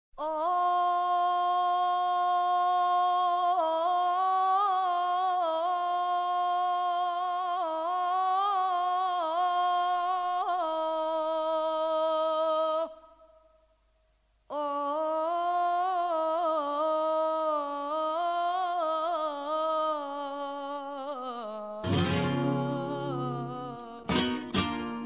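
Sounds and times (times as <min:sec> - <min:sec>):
woman singing a long note: 0:14.5 - 0:24.2.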